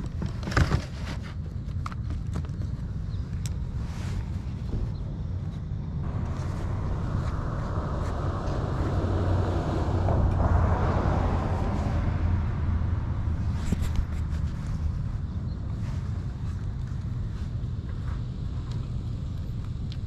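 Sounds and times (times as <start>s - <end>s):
steady low rumble: 1.3s - 20.0s
car driving past: 6.0s - 15.2s.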